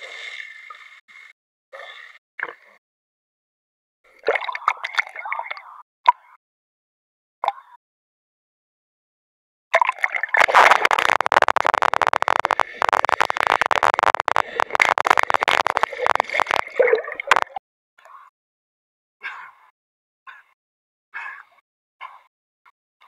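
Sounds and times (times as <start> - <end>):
water gurgling over microphone: 4.2 - 5.8, 9.8 - 17.6.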